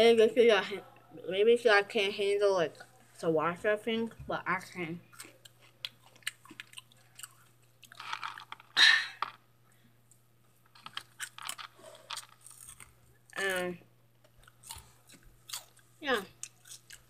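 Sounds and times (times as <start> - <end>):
person chewing crunchy snacks: 5.1 - 9.4, 10.1 - 13.7, 14.3 - 17.0.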